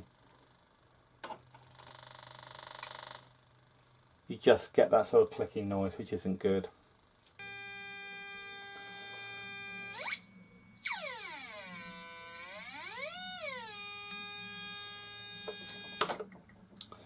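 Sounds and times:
buzzy electronic tone sweeping: 0:07.4 - 0:16.0.

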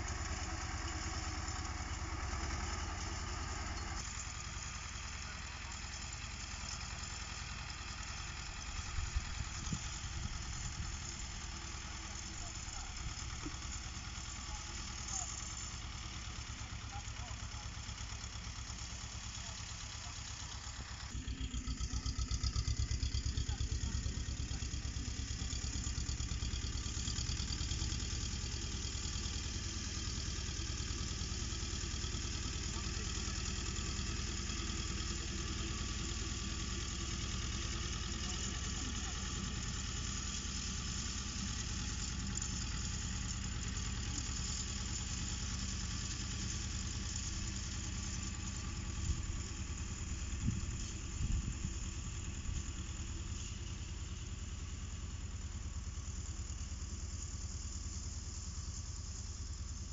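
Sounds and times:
tractor diesel engine running: 0:00.0 - 0:59.9.

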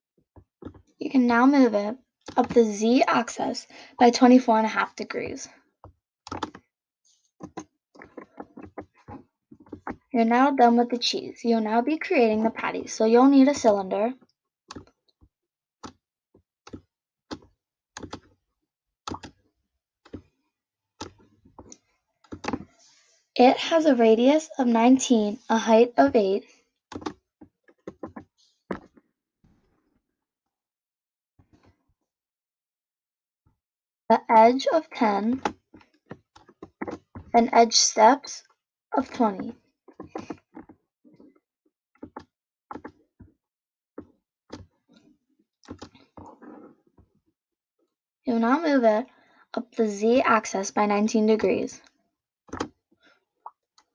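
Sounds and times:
computer mouse clicking: 0:06.3 - 0:06.6, 0:18.0 - 0:18.3, 0:19.1 - 0:19.3, 0:26.9 - 0:27.2.

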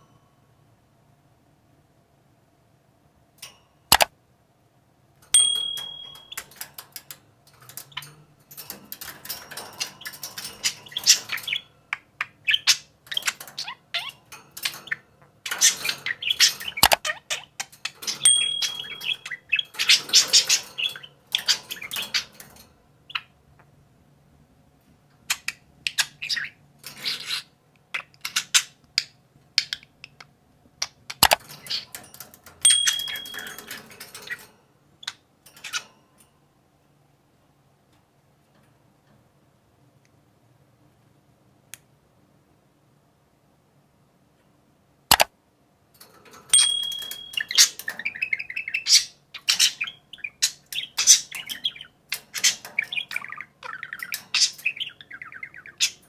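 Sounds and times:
budgerigars chattering and chirping: 0:10.1 - 0:14.2, 0:14.8 - 0:22.3, 0:46.8 - 0:56.0.

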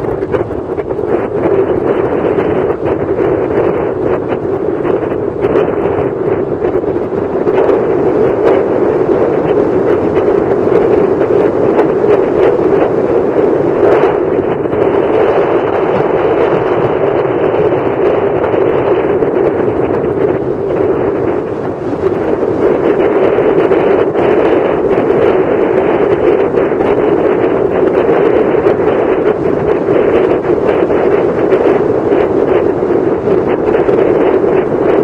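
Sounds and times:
strong wind on microphone: 0:00.0 - 0:35.0.

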